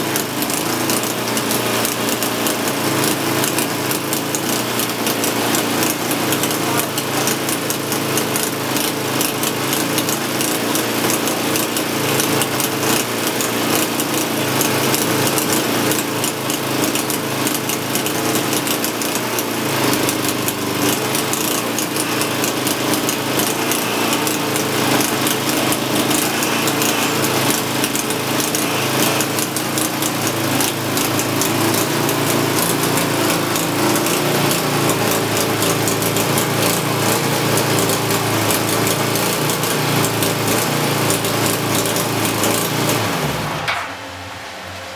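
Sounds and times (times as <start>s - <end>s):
sawmill engine cutting log: 0.0s - 44.9s.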